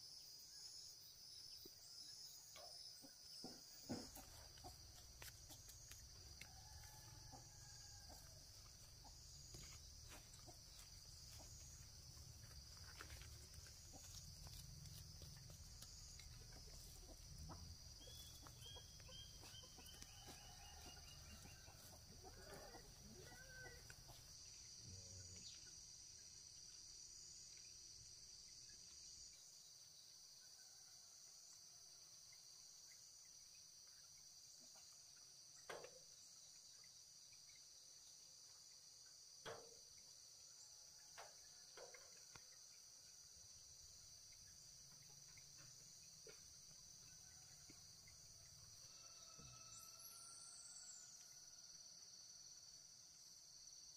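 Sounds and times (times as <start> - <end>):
insects droning: 0.0 - 53.9
faint animal or bird calls: 22.3 - 23.9.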